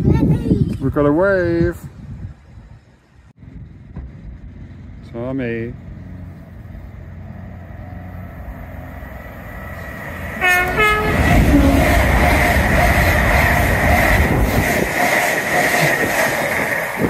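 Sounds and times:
rushing rumble of passing train: 1.8 - 17.0
train horn notes: 10.4 - 12.2.

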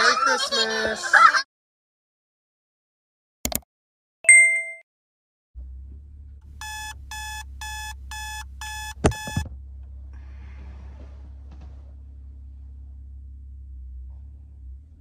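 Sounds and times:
short chime: 4.3 - 4.8.

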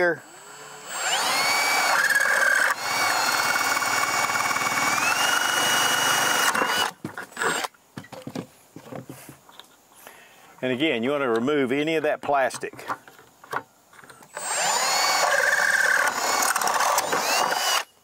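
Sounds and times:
cordless drill motor whine: 0.0 - 7.7, 14.3 - 18.0.

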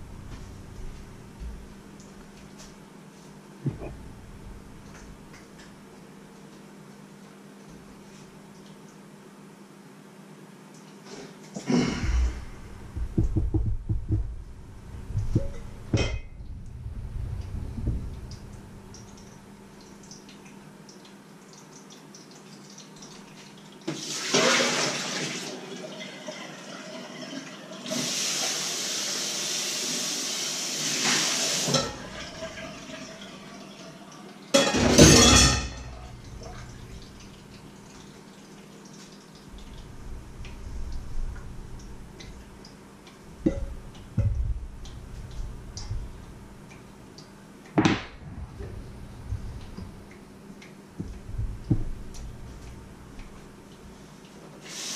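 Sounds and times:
steel bowls knocking on wood: 12.9 - 16.6, 43.4 - 46.3
water splashing into sink: 21.5 - 29.2, 30.8 - 54.0.

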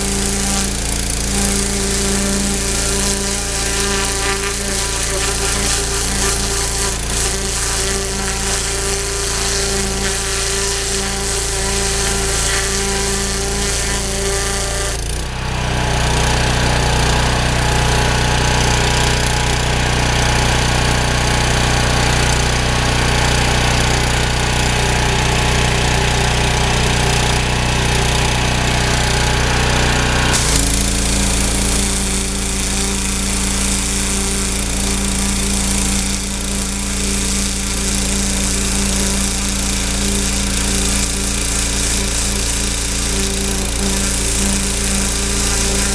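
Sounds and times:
high-pressure spray hissing: 0.0 - 15.0, 30.3 - 45.9
pressure washer motor drone: 0.0 - 45.9.

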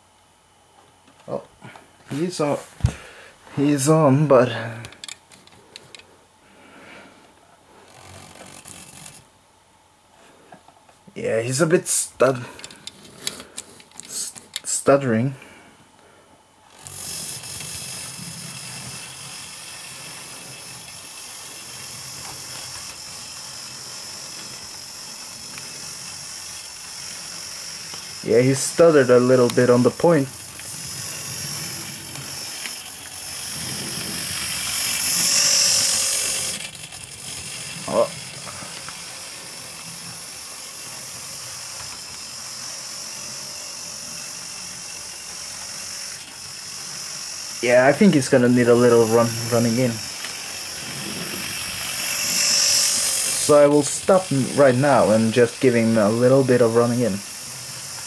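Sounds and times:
model train motor whirring: 7.7 - 9.3, 11.5 - 15.2, 16.7 - 58.0
wheels on rails: 7.8 - 9.3, 16.7 - 58.0.

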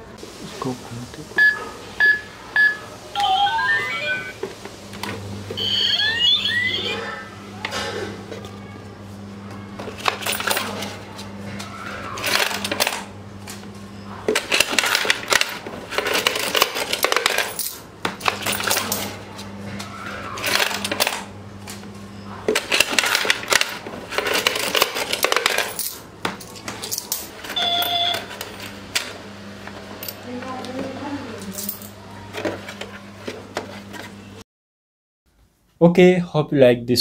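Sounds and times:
coins clinking and rattling: 10.0 - 10.9, 14.4 - 19.2, 22.6 - 28.8, 31.4 - 31.9.

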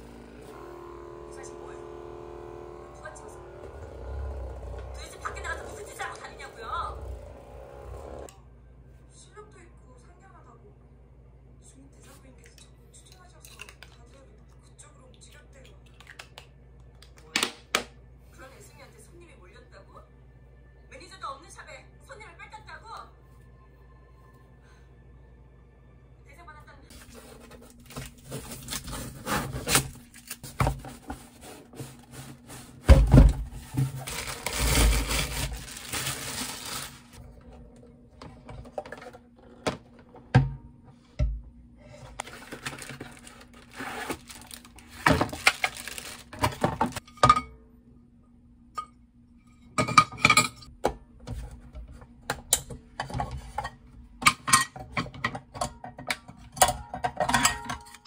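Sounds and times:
cardboard packaging rustling: 26.9 - 32.8, 33.4 - 37.2, 42.2 - 47.0.

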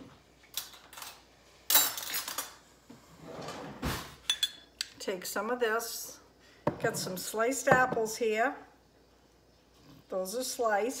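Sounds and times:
dull thump on counter: 6.7 - 7.1.

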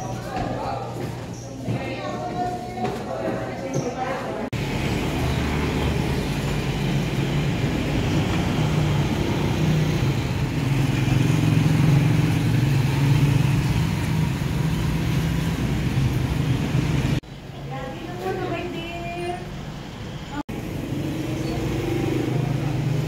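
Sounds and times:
vehicle engine with road noise: 4.5 - 17.6, 19.1 - 23.0.

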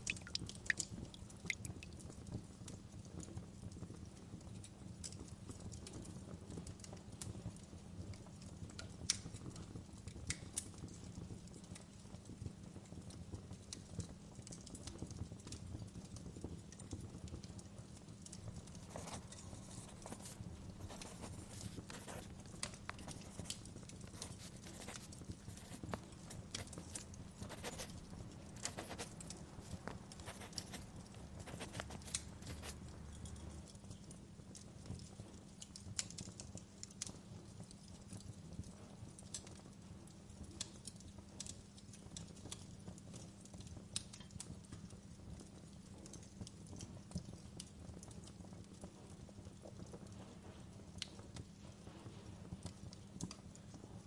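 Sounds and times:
fire crackling and popping: 0.0 - 2.1, 18.3 - 33.7.

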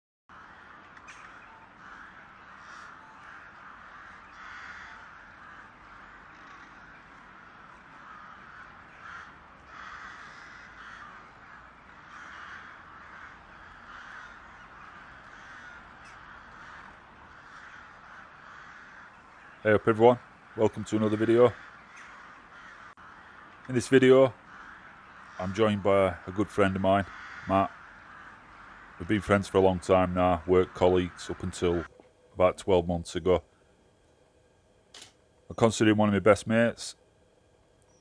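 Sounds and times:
crows cawing: 0.3 - 38.0.

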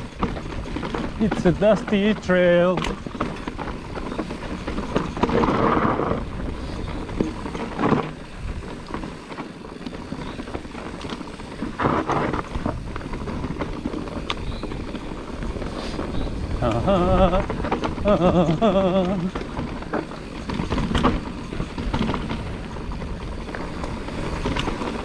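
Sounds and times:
bike tyres rattling over stones: 0.0 - 25.0
wind on microphone: 11.5 - 20.0.

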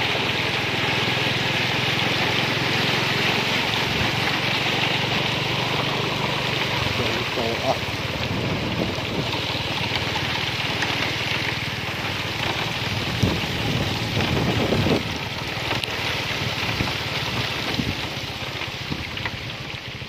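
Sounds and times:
small vehicle engine running: 0.0 - 20.0
wind hiss on microphone: 12.8 - 15.2.

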